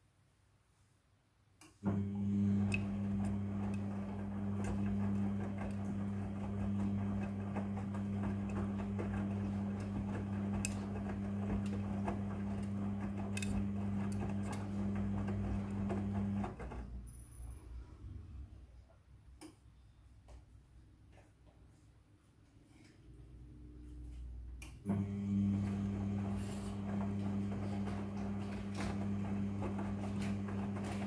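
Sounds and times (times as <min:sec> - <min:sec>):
washing machine motor hum: 0:01.8 - 0:17.1, 0:23.3 - 0:31.0.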